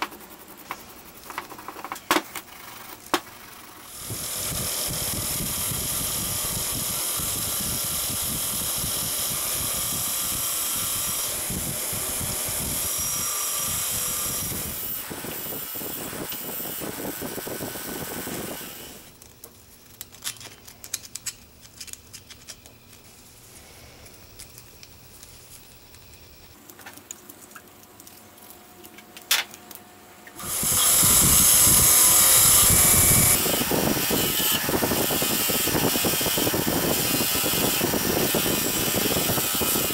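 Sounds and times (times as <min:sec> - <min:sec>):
steel pick clicking and scraping: 0:19.2 - 0:23.0.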